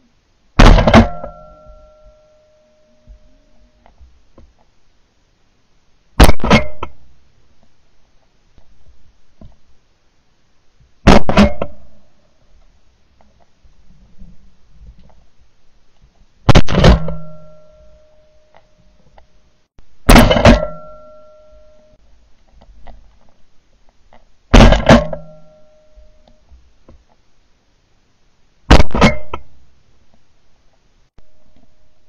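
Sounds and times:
shotgun shots: 0.6 - 1.6, 11.0 - 11.8, 16.5 - 17.6, 20.1 - 21.0, 24.5 - 25.4.

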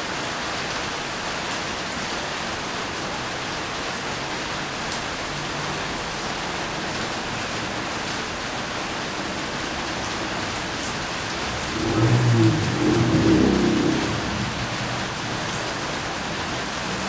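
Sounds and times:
steady rain hiss: 0.0 - 17.0
low rumble: 11.2 - 17.0.

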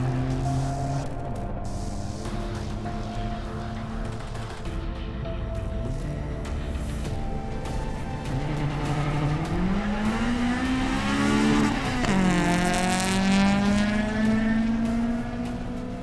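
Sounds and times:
cars accelerating hard: 0.0 - 4.5, 7.8 - 16.0.

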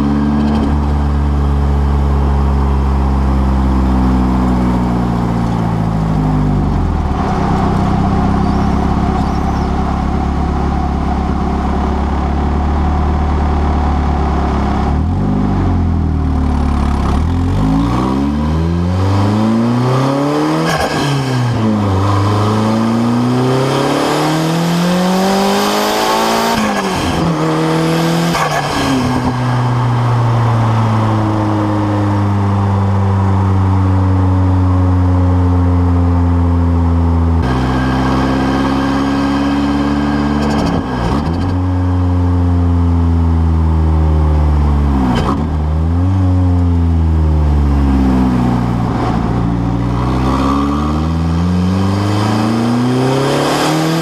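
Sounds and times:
turbocharged car engine revving: 0.0 - 35.9, 36.5 - 54.0.

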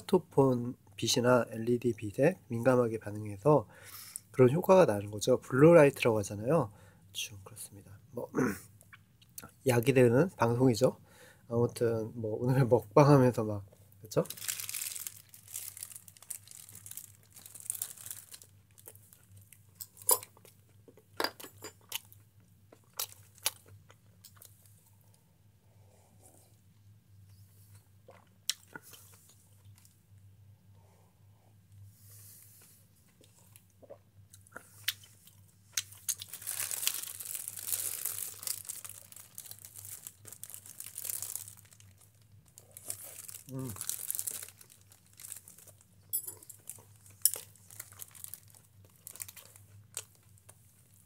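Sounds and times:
light crinkling: 14.2 - 20.0, 35.8 - 51.0.

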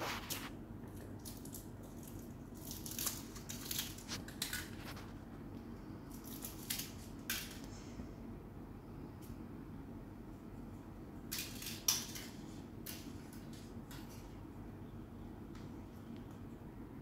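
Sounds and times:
foil wrapper crinkling: 0.0 - 5.2
faint low hum: 0.0 - 17.0.

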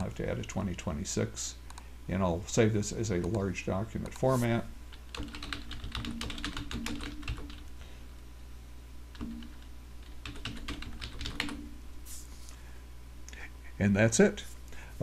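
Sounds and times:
computer keyboard typing: 5.0 - 7.7, 9.1 - 11.7.

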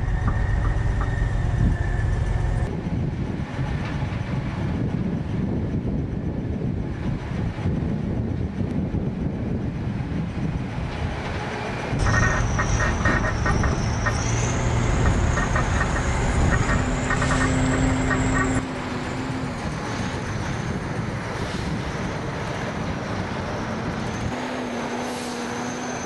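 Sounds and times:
heavy truck engine running: 0.0 - 6.0, 10.1 - 24.3
thin high whine: 12.0 - 18.6.

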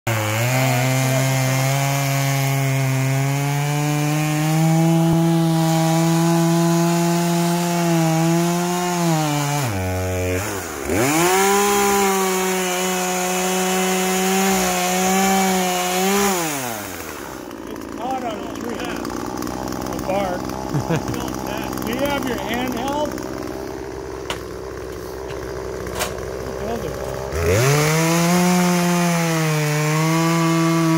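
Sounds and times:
chainsaw cutting tree trunk: 0.1 - 30.9.

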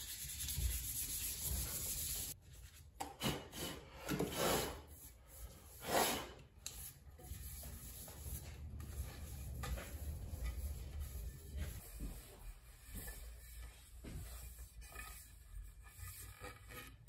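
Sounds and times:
rubbing along wooden axe handle: 7.2 - 17.0.

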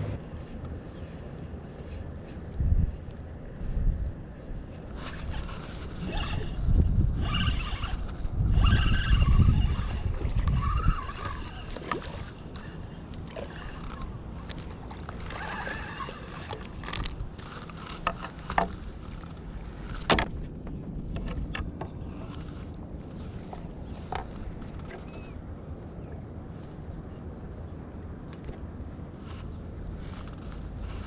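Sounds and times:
low microphone rumble: 0.0 - 7.3
reel and rod clicks: 4.9 - 20.3, 21.2 - 25.4, 28.3 - 31.0
fishing reel cranking: 5.0 - 19.9.

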